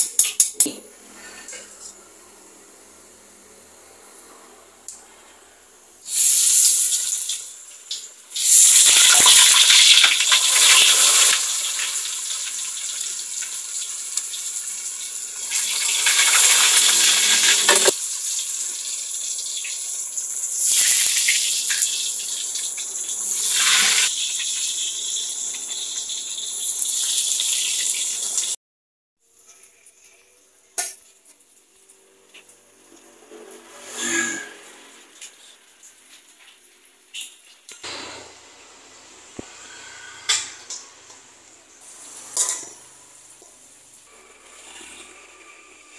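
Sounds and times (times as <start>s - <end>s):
oil sizzling in a wok: 5.7s - 28.6s, 33.6s - 45.9s.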